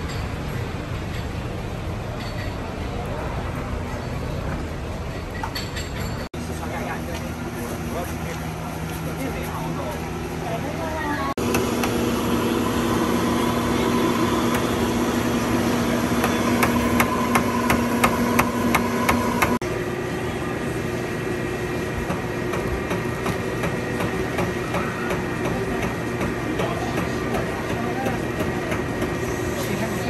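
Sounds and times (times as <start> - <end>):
mechanical hum: 0.0 - 30.0
hum with high tone: 11.0 - 22.4.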